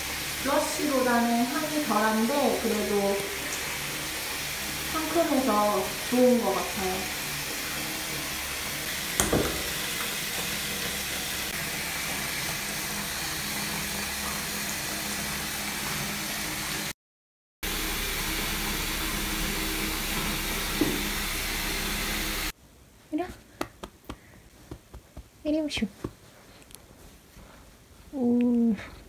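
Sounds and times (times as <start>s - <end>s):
bath bomb fizzing: 0.0s - 16.7s, 17.6s - 22.5s.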